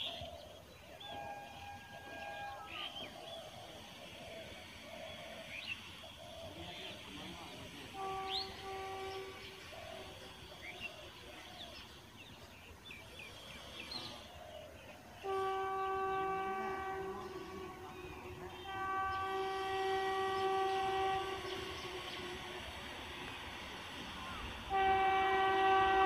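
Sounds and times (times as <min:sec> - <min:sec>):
birds chirping faintly: 0:00.0 - 0:26.0
locomotive horn blasts: 0:01.0 - 0:03.1, 0:06.5 - 0:10.4, 0:15.1 - 0:26.0.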